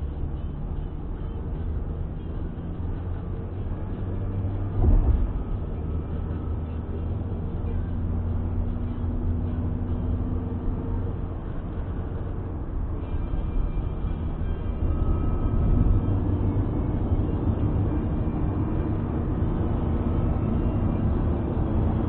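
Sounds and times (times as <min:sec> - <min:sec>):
car engine and tyres rumbling: 0:00.0 - 0:22.0
brief thump: 0:04.7 - 0:05.5.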